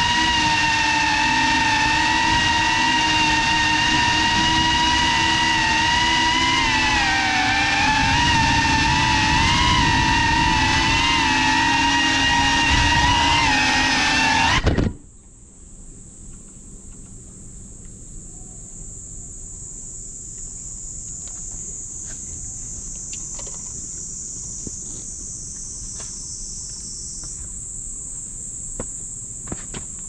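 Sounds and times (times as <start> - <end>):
insect chorus: 0.0 - 13.6, 14.6 - 30.0
low wind rumble: 0.0 - 13.8.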